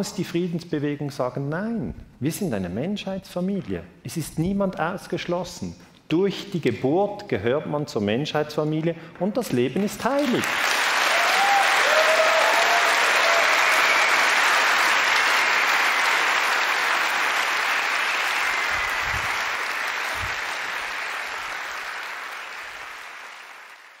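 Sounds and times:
audience applauding: 9.8s - 24.0s.

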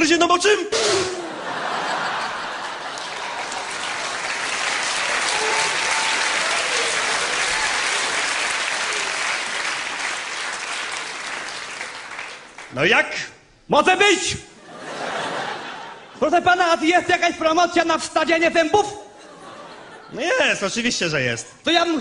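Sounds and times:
audience applauding: 1.6s - 12.8s.

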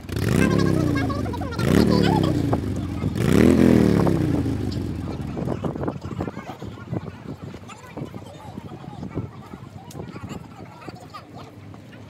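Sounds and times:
vehicle engine revving: 0.0s - 5.8s
voices: 0.0s - 12.0s.

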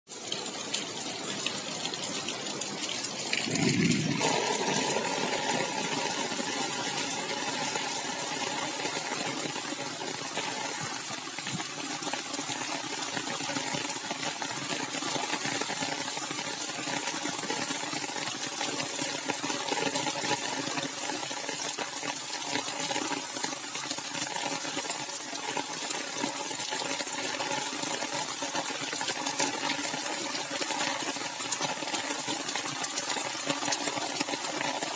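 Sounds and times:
heavy rain on paving and foliage: 0.1s - 34.9s
low rumble: 3.4s - 4.2s.

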